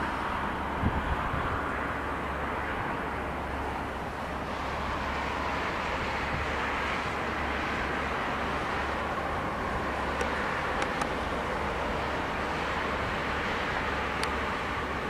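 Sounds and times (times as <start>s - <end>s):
train wheels on rails: 3.0s - 15.0s
sharp clicks: 10.2s - 11.2s.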